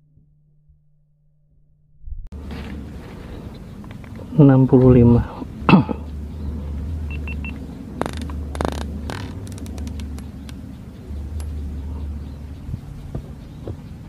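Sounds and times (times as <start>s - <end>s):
wind rumble on microphone: 2.1s - 14.0s
short high beeps: 7.1s - 7.6s.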